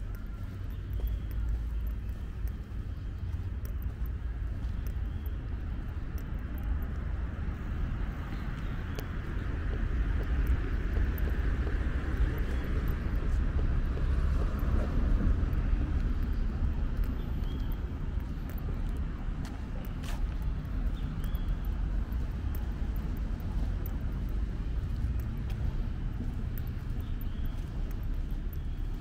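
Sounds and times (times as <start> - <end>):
low street rumble: 0.0 - 29.0
vehicle passing: 7.1 - 29.0.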